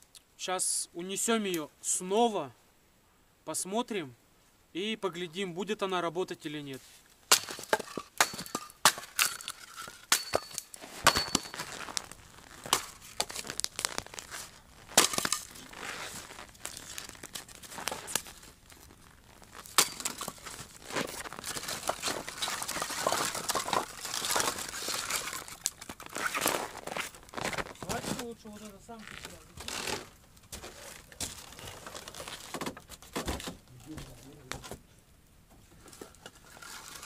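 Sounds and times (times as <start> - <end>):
crunching and crackling: 7.0 - 34.7, 35.7 - 37.0.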